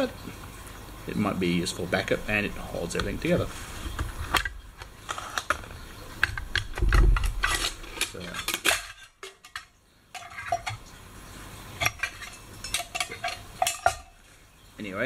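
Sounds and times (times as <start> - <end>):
plastic canteen sliding: 2.4 - 9.6
metal cup clinking: 7.2 - 11.0, 11.8 - 14.2.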